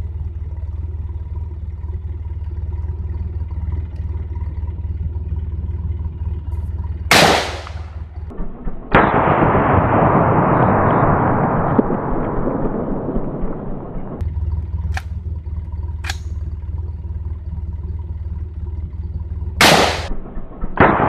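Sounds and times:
steady low rumble: 0:00.0 - 0:21.0
rifle shot: 0:07.1 - 0:13.7, 0:19.6 - 0:21.0.

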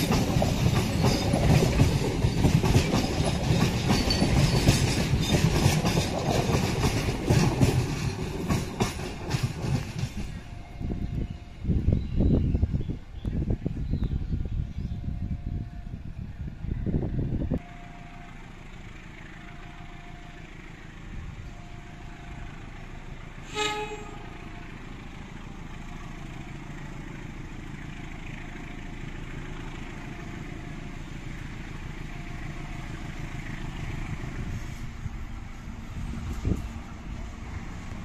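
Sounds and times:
diesel locomotive engine rumble: 0:00.0 - 0:38.0
train horn toot: 0:10.4 - 0:11.8, 0:14.8 - 0:16.2, 0:23.4 - 0:24.8.

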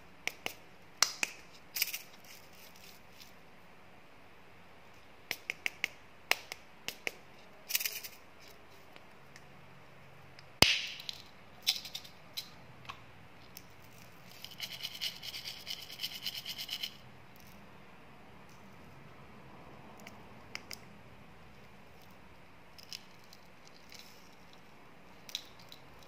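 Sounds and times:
candy pellets rattling: 0:13.9 - 0:17.0.

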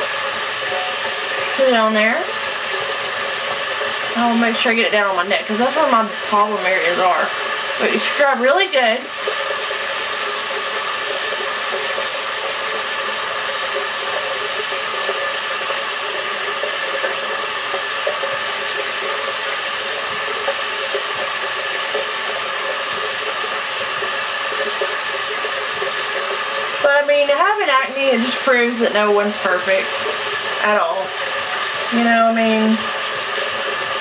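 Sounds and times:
tap running into sink: 0:00.0 - 0:34.0.

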